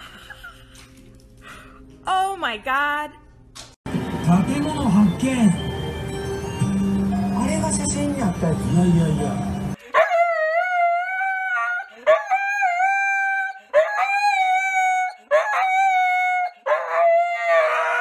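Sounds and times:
husky howling: 10.0 - 18.0.

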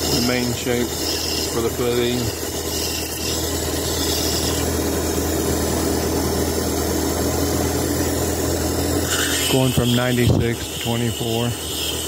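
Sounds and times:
stone grinding on lap: 0.0 - 4.9, 9.0 - 12.0
faceting machine motor humming: 0.0 - 12.0.

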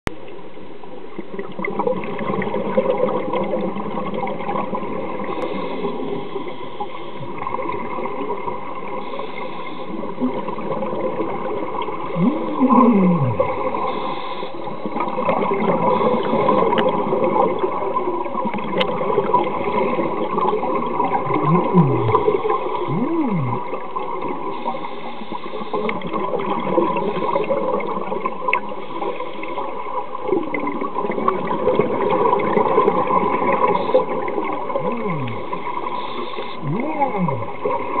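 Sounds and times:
bubbling of exhaled air: 1.5 - 38.0
diver breathing through regulator: 12.2 - 15.0, 15.8 - 16.7, 21.3 - 23.7, 34.8 - 37.6.

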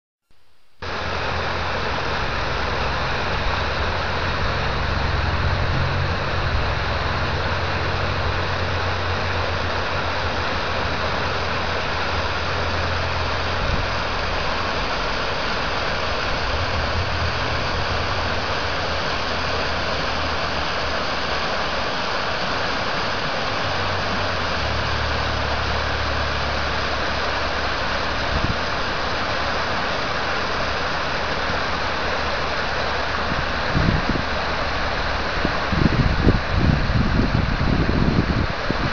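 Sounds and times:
low rumble: 0.8 - 21.0
river water rushing over dam: 0.8 - 38.9.

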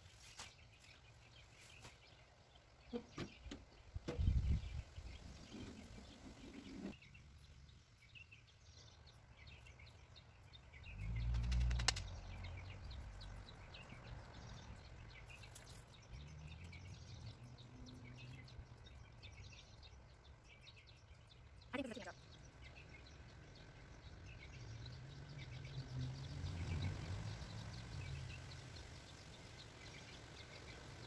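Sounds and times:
birds chirping: 0.0 - 31.0
sharp click: 11.4 - 12.1.

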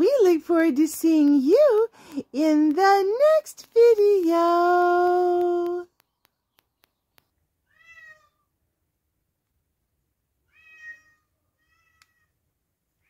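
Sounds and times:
cat meowing: 7.7 - 8.5, 10.5 - 12.4.

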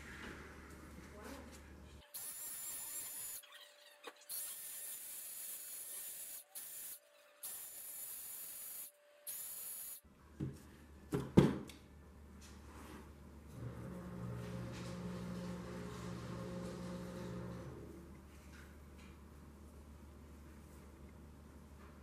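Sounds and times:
cleaning spray hissing: 4.4 - 10.0.

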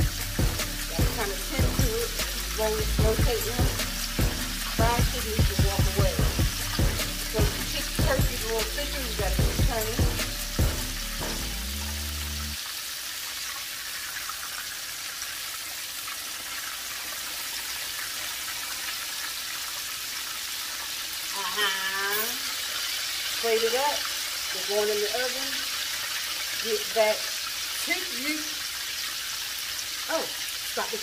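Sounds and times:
background music with a beat: 0.0 - 12.6
oil sizzling: 0.0 - 31.0.

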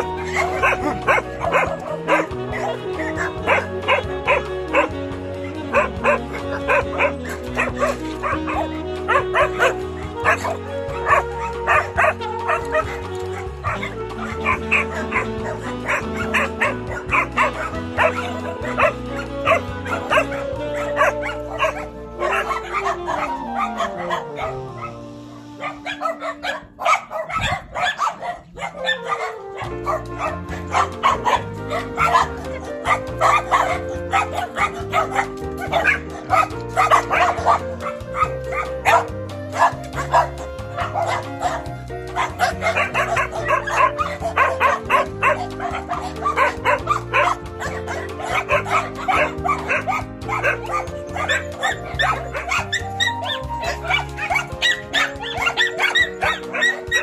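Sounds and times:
background music with bass line: 0.0 - 57.0
many dogs barking: 0.0 - 57.0.

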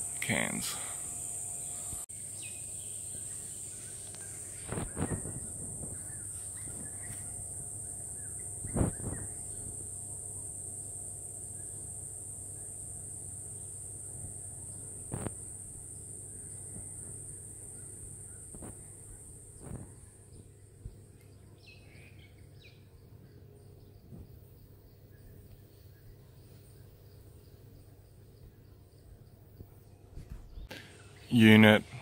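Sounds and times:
high-pitched insect drone: 0.0 - 20.1.

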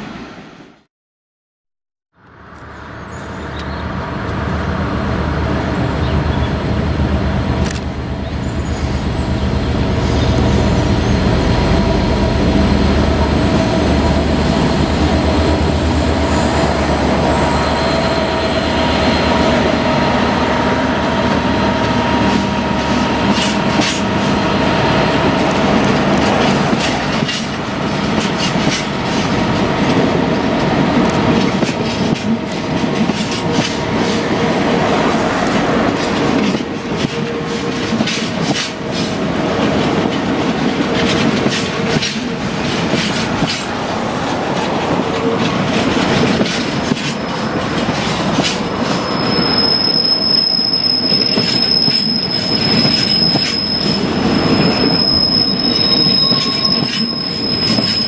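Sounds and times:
high wheel squeal: 8.4 - 20.2, 48.6 - 58.0
train wheels clacking on rail joints: 10.1 - 58.0.

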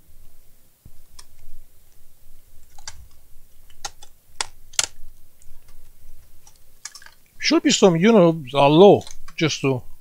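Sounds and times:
plastic laptop parts clicking: 2.6 - 5.0, 6.4 - 7.2.

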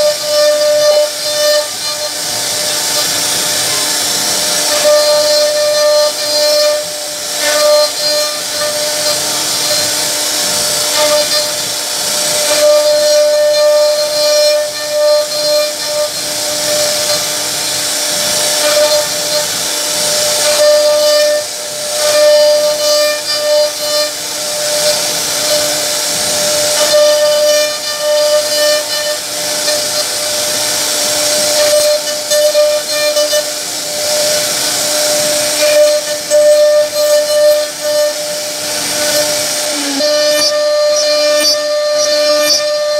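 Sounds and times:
bit cutting wood hissing: 0.0 - 42.9
router spindle high whine: 0.0 - 42.9.

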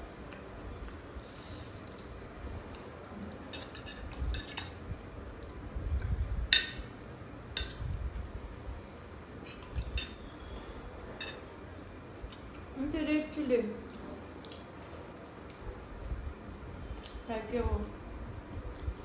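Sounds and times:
forks clinking against metal bowls: 11.2 - 11.4.

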